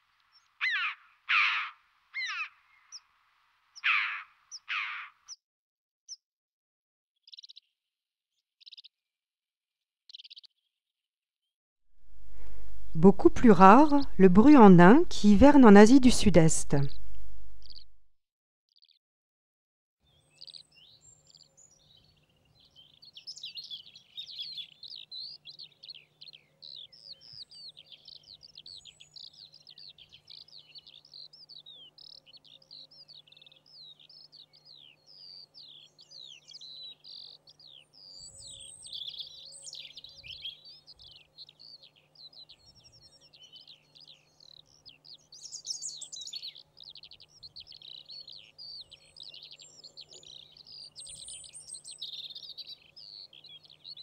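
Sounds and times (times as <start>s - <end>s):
small birds chirping and twittering: 0.0s - 3.1s, 3.7s - 5.4s, 7.2s - 7.8s, 8.6s - 9.0s, 10.1s - 10.7s, 18.7s - 19.0s, 20.0s - 54.0s.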